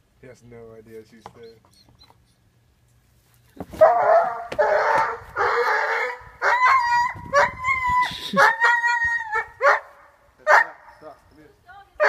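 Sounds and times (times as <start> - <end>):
dog yelping and crying: 3.8 - 9.8.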